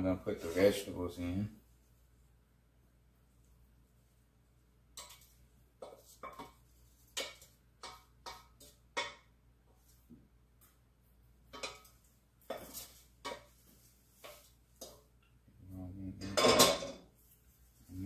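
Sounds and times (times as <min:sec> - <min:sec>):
wooden spoon knocking on saucepan: 0:07.2 - 0:09.3.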